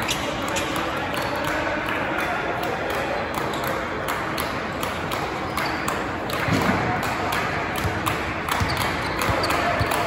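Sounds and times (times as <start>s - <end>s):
hubbub of players and spectators: 0.0s - 10.0s
sneakers squeaking on court floor: 5.2s - 6.6s, 8.4s - 10.0s.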